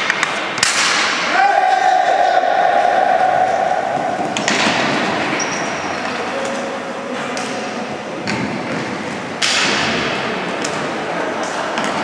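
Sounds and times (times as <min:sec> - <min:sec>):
din of players and spectators: 0:00.0 - 0:12.0
sticks and ball knocking boards: 0:04.2 - 0:05.1.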